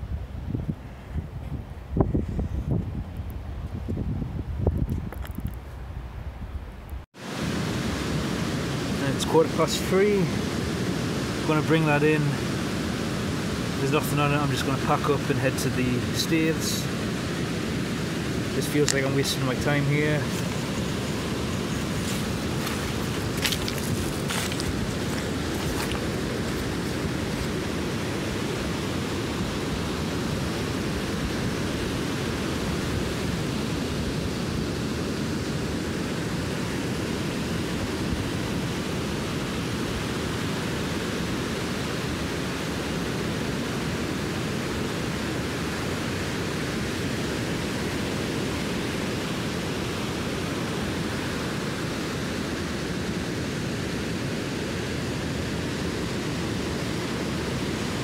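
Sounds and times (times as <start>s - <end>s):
surf breaking on beach: 7.2s - 58.0s.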